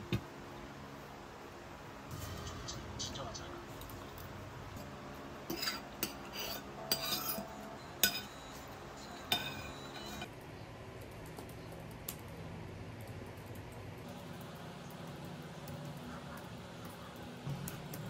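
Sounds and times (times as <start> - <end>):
cutlery clinking on a plate: 5.5 - 8.4, 9.1 - 10.3.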